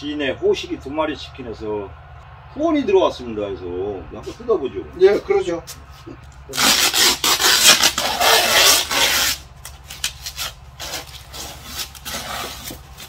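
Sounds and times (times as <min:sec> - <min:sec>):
scrapes and rustles: 0:05.7 - 0:13.0
packing tape ripping: 0:06.5 - 0:13.0.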